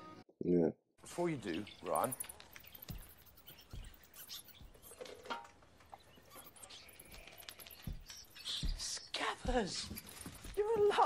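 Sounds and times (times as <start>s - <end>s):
scratchy rustles: 1.9s - 11.0s
soft low thumps: 2.1s - 4.9s, 6.8s - 11.0s.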